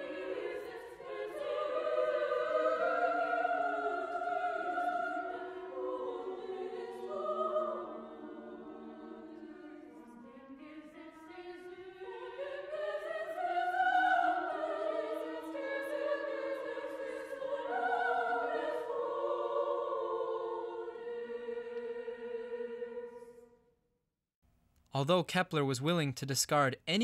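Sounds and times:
choir singing: 0.0s - 23.7s.

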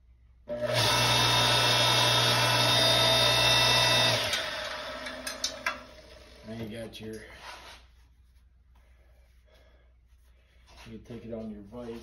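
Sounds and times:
log splitter motor and pump: 0.5s - 6.5s.

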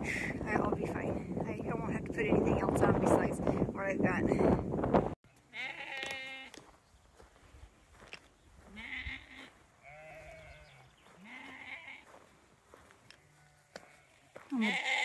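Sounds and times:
sheep bleating: 5.3s - 6.6s, 8.6s - 12.2s, 13.2s - 15.0s.

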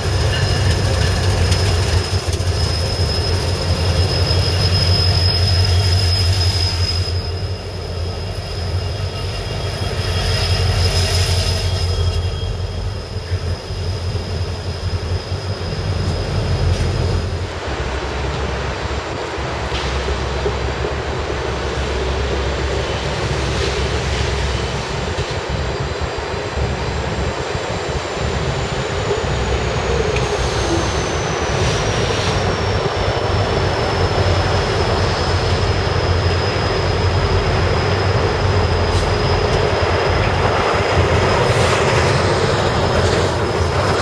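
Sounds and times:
freight cars rolling: 0.0s - 26.7s, 28.2s - 44.0s
diesel locomotive engine rumble: 0.0s - 44.0s.

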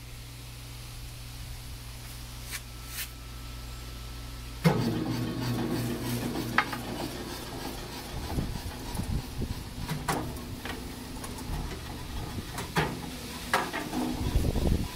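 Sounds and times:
surfacer machine humming: 2.8s - 14.9s
mechanical rumble and rattle: 4.3s - 14.9s
feed mechanism clunk: 4.6s - 9.2s, 9.8s - 14.7s.

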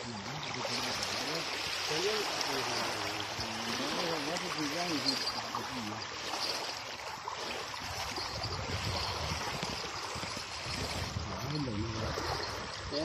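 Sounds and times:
small waves lapping on shore: 0.0s - 13.0s
wind rumble on microphone: 7.7s - 13.0s.

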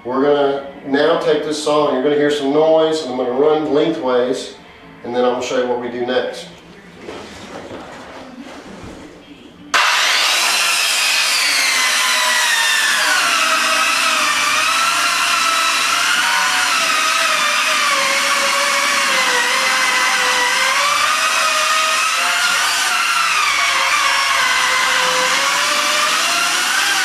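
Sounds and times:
circular saw cutting board: 9.8s - 27.0s.

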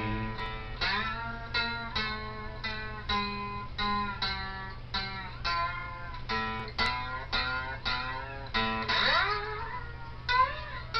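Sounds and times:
low hum: 0.0s - 1.4s
slide guitar notes: 0.0s - 10.9s.

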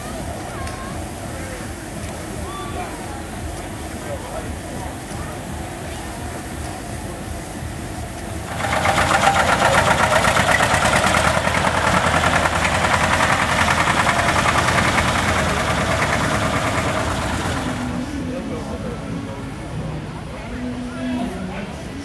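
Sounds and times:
tractor engine clattering: 8.1s - 18.2s.

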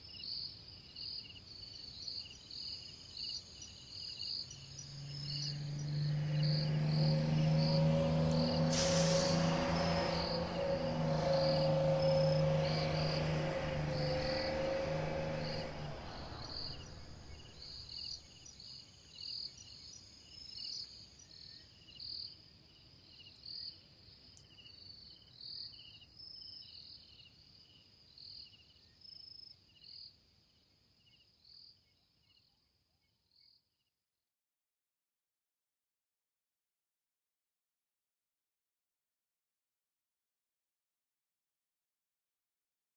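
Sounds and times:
crickets chirping: 0.1s - 32.0s.

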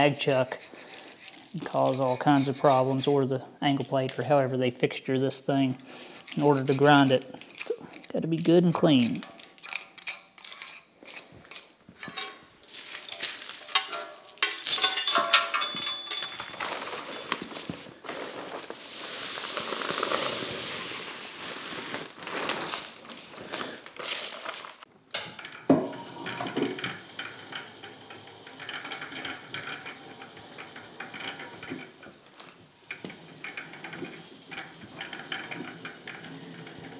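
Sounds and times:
scraping on cast iron: 0.0s - 3.3s, 5.7s - 8.1s, 25.4s - 36.9s
metal clinks and clicks: 12.0s - 17.4s.

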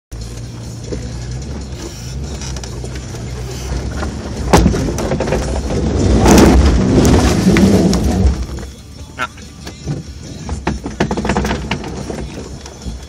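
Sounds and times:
vehicle engine pulling at low speed: 0.1s - 13.0s
vehicle jolts and knocks over rocks: 3.8s - 8.8s, 9.7s - 13.0s.

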